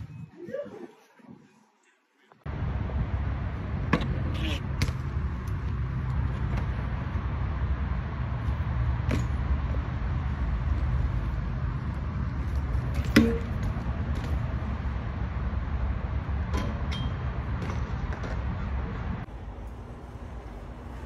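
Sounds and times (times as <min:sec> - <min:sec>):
steady low rumble: 0:02.4 - 0:21.0
bike hitting ledge with metallic clank: 0:09.0 - 0:09.4, 0:12.9 - 0:14.3.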